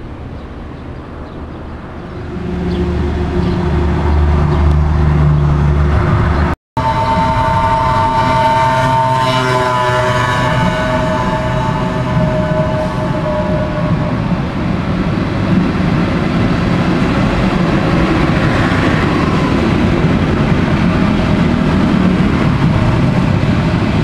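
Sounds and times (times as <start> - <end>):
diesel locomotive engine rumbling: 0.0 - 24.0
electric train whine: 0.0 - 24.0
train rumble: 0.0 - 24.0.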